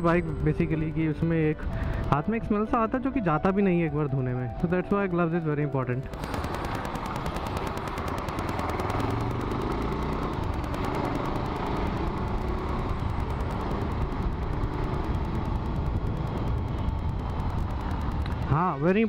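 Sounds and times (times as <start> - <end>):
motorcycle engine running: 0.0 - 2.9, 6.0 - 19.0.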